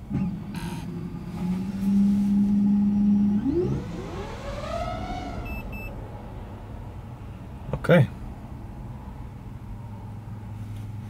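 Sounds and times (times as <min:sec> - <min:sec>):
drone motors whining: 0:00.1 - 0:06.0
short high beep: 0:05.4 - 0:05.9.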